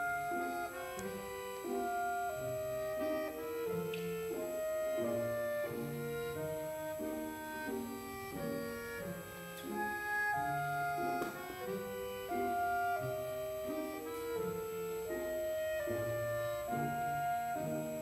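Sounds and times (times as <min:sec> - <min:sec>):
slow instrumental music: 0:00.0 - 0:18.0.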